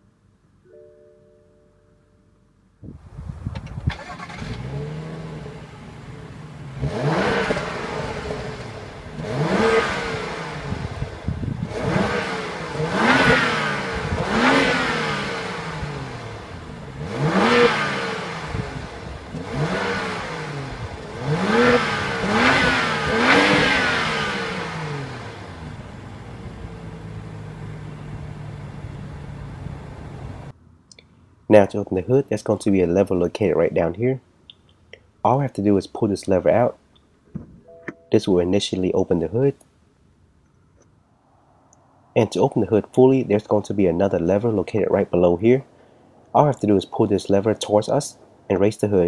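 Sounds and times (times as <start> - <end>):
car engine starting: 3.1 - 49.0
car engine revving: 3.9 - 30.5.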